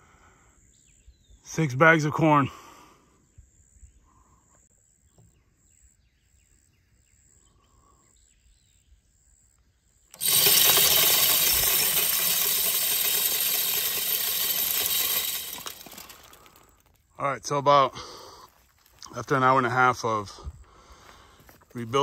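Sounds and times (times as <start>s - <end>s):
faint insect chirping: 0.0s - 17.2s
spinner motor running: 10.1s - 16.9s.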